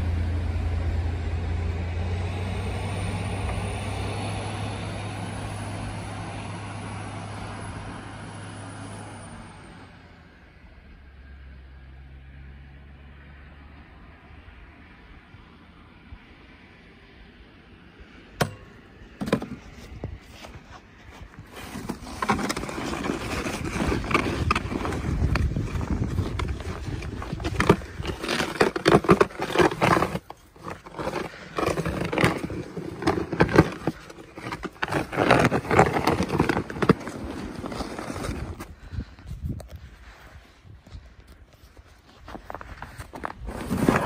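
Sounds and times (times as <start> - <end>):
snow pusher scraping snow: 19.2 - 38.9, 42.0 - 44.0
footsteps in snow: 19.4 - 44.0.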